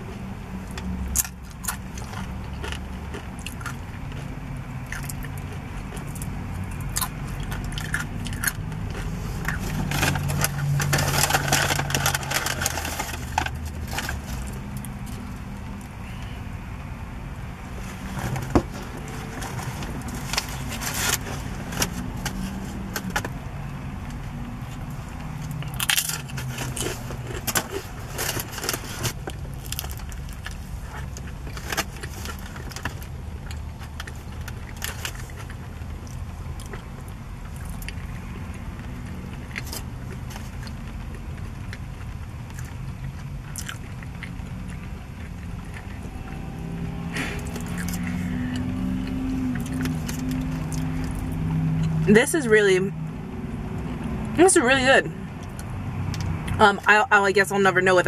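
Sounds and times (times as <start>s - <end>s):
biting and chewing: 0.1s - 16.4s, 17.7s - 52.0s, 53.6s - 54.4s
aluminium foil crinkling: 9.6s - 15.2s.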